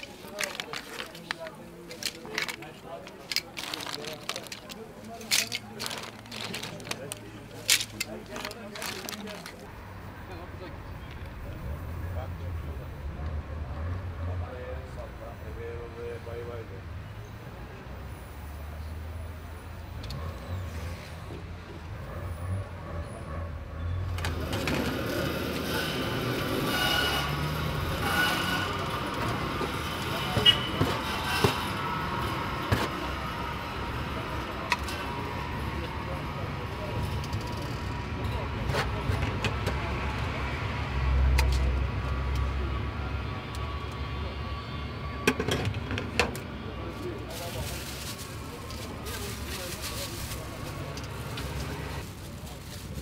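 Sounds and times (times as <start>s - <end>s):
handling clatter: 0.0s - 9.7s.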